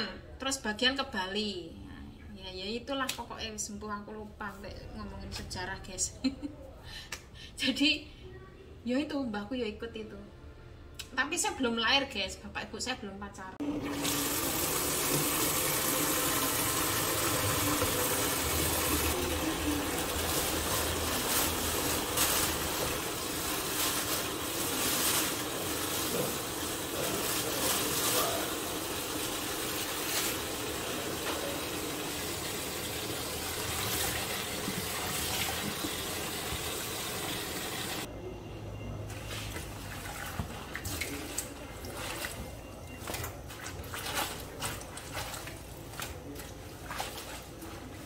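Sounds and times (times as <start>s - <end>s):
tap running into plastic basin: 13.8s - 21.2s.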